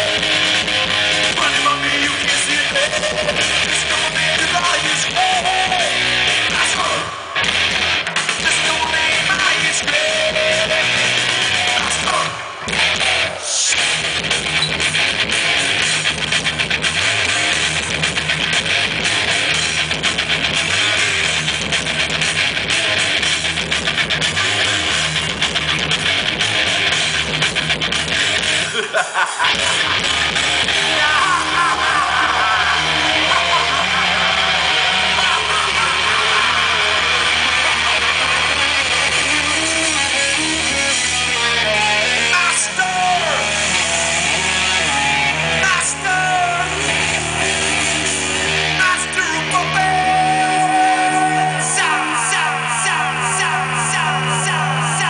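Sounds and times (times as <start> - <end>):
crowd cheering and whistling: 0.0 - 16.2, 28.2 - 55.0
heavy metal band playing: 0.0 - 55.0
ringing guitar and bass notes: 0.0 - 55.0.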